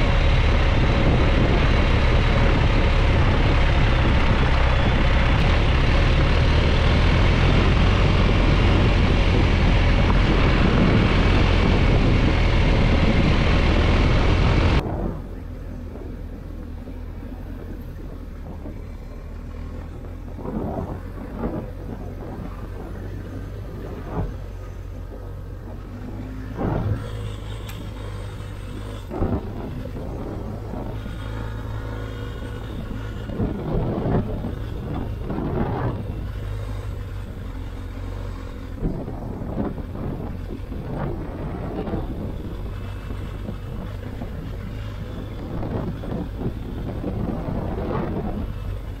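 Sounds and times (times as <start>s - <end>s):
motorcycle engine droning: 0.0s - 49.0s
wind and road noise: 0.0s - 49.0s.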